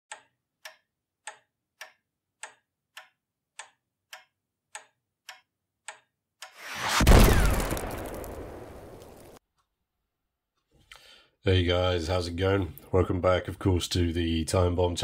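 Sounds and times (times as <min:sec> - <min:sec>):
clock ticking: 0:00.1 - 0:06.6.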